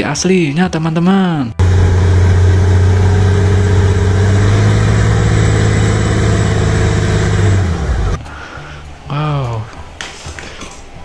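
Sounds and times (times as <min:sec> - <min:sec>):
wheel loader diesel engine running: 0:01.6 - 0:08.2.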